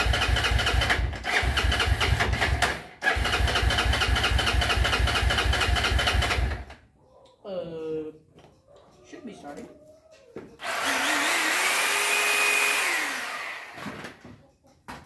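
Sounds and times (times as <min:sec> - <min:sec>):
engine cranking without starting: 0:00.0 - 0:06.8.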